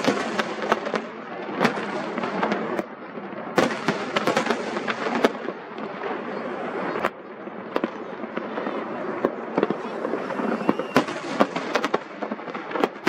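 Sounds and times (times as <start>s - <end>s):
fireworks crackle: 0.0s - 13.0s
firework shells bursting: 9.2s - 13.0s.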